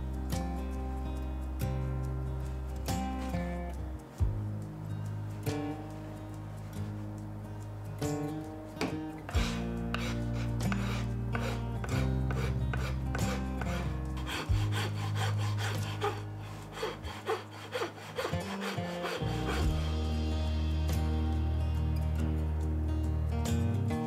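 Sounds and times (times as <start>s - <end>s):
hand file rasping on wood: 9.3s - 19.9s.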